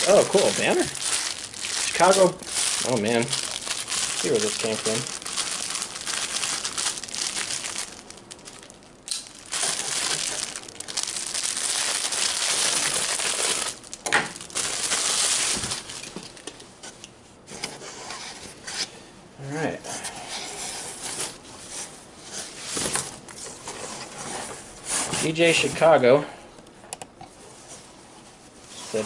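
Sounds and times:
plastic bag crinkling: 0.0s - 16.5s.

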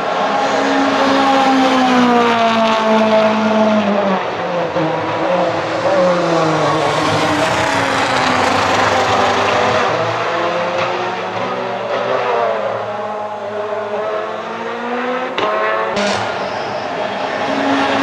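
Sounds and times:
rally car engine passing at speed: 0.0s - 18.0s.

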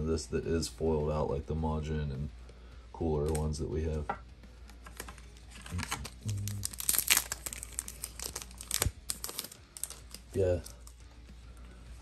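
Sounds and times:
foil wrapper crinkling and tearing: 4.8s - 11.0s.

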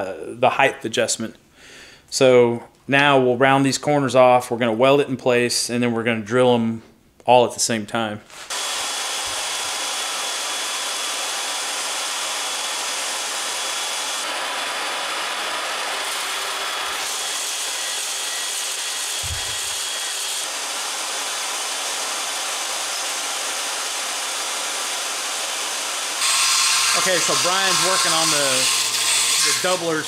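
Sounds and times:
band saw cutting metal: 8.3s - 30.0s.

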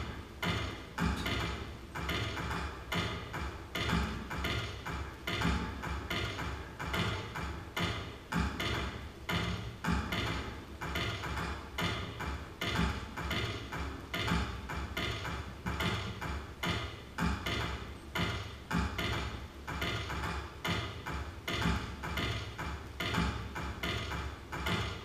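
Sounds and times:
clicking and knocking electronic hits: 0.0s - 25.0s.

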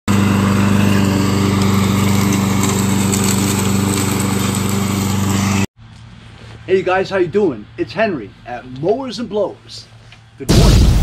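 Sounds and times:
lawn mower engine running: 0.1s - 6.6s.

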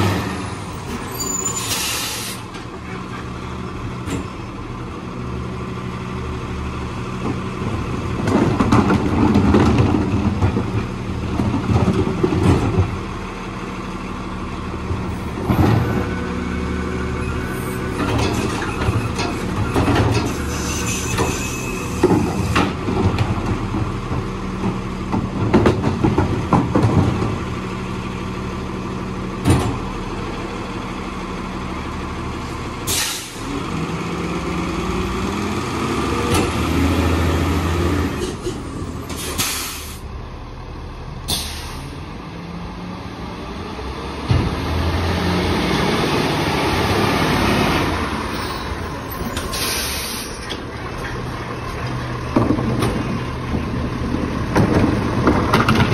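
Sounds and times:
garbage truck diesel engine: 0.0s - 55.9s
air brake hisses: 1.4s - 2.5s, 32.9s - 33.5s, 39.1s - 40.0s, 41.3s - 42.0s, 49.4s - 50.4s
clatter: 51.7s - 55.9s.

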